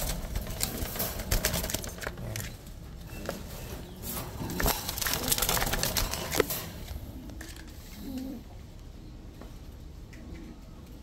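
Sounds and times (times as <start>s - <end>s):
wire cage clicks and rattles: 0.0s - 7.8s.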